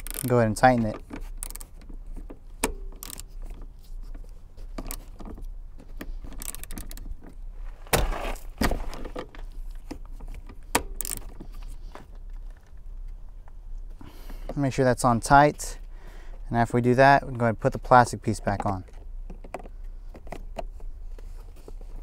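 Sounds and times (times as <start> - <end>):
ratchet wrench clicking: 0.0 - 0.4, 1.3 - 1.8, 2.6 - 3.3, 6.4 - 7.0, 10.8 - 11.3.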